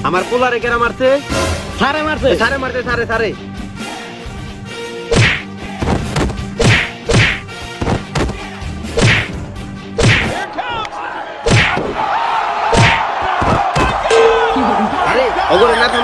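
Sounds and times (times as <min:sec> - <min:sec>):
sharp whacks of blows: 0:05.1 - 0:08.4, 0:09.0 - 0:09.4, 0:10.0 - 0:10.4, 0:11.5 - 0:11.9, 0:12.7 - 0:14.0.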